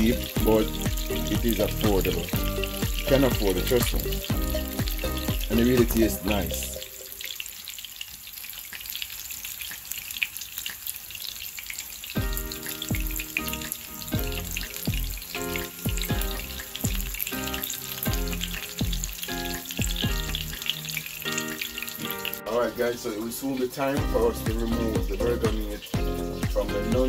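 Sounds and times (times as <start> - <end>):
background music with bass hits: 0.0 - 6.8, 12.2 - 20.7, 24.0 - 27.0
burger patty sizzling in a pan: 0.0 - 26.9.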